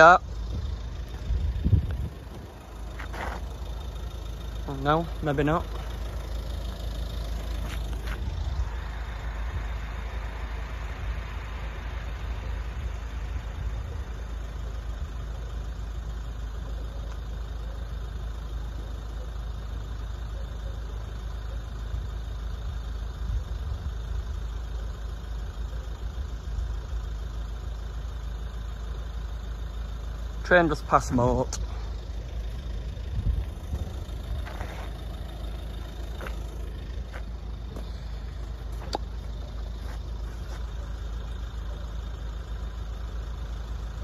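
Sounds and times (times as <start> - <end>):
car engines idling: 0.0 - 44.0
road traffic rumble: 0.0 - 44.0
car passing: 1.0 - 15.1.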